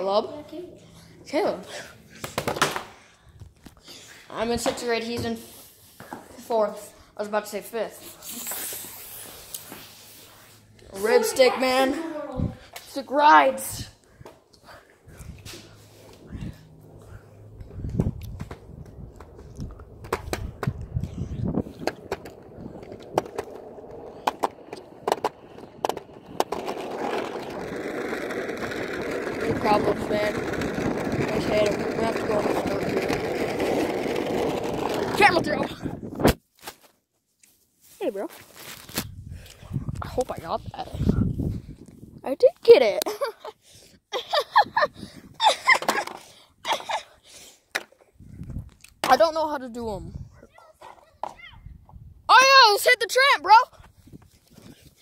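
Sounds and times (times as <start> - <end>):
wheels rolling on pavement: 0.0 - 36.2, 44.2 - 55.0
boy exclaiming or laughing: 10.9 - 13.9, 52.3 - 53.7
board wheels clacking on joints: 14.2 - 36.0.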